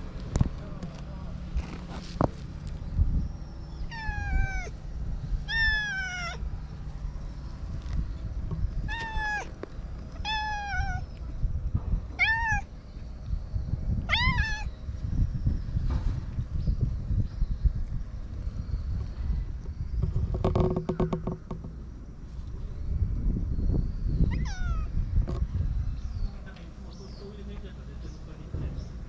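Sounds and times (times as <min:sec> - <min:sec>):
cat meowing: 0:03.9 - 0:04.8, 0:05.4 - 0:06.4, 0:08.8 - 0:09.6, 0:10.2 - 0:11.1, 0:12.2 - 0:12.7, 0:14.1 - 0:14.7, 0:24.3 - 0:24.9.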